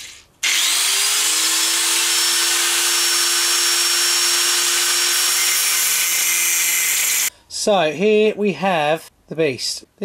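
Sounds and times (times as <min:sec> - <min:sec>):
angle grinder cutting metal: 0:00.0 - 0:07.3.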